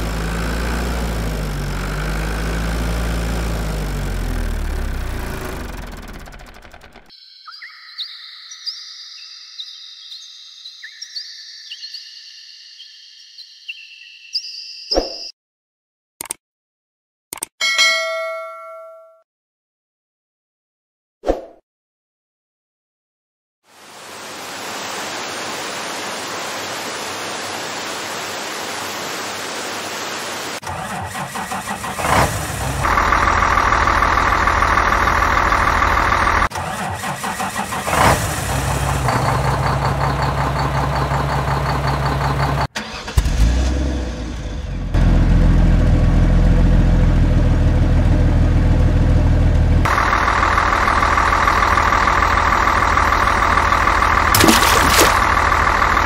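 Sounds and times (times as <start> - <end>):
vehicle engine idling: 0.0 - 7.1, 30.8 - 36.5, 38.5 - 43.1, 44.1 - 56.0.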